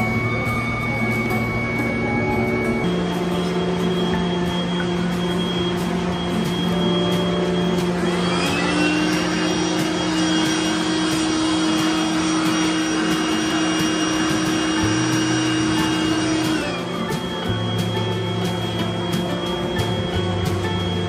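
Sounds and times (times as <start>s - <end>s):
electric air blower whining: 0.0s - 21.0s.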